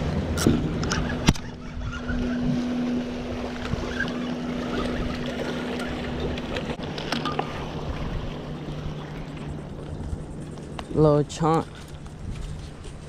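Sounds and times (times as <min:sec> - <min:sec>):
steady low hum: 0:00.0 - 0:13.0
wind buffeting microphone: 0:00.0 - 0:13.0.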